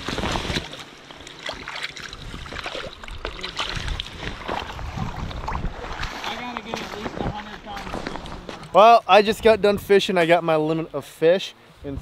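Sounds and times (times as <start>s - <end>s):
feet splashing through water: 0.0s - 8.8s.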